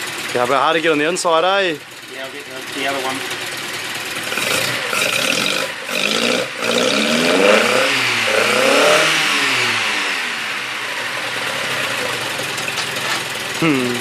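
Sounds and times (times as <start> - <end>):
car engine revving and idling: 0.0 - 14.0.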